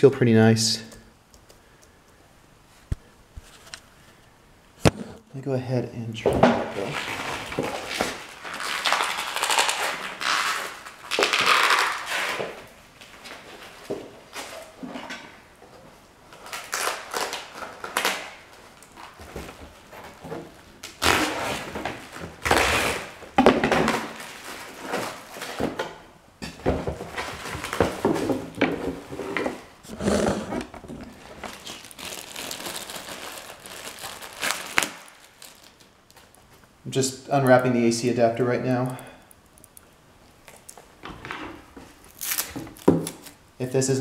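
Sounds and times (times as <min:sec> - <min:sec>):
plastic packaging crinkling: 0:06.7 - 0:14.8, 0:16.3 - 0:25.6, 0:30.6 - 0:36.8, 0:41.9 - 0:43.4.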